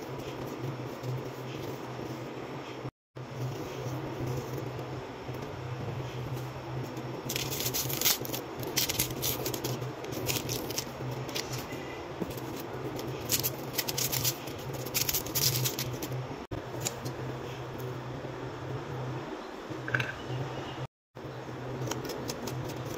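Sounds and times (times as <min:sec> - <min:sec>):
steady low hum: 0:00.0 - 0:22.9
onion skin crackly rustles: 0:07.3 - 0:16.2.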